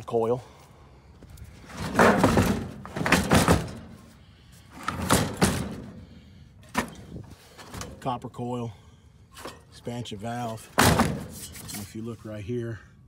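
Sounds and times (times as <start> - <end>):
metal clattering on wood: 1.7 - 4.1, 4.7 - 8.0, 10.7 - 11.8.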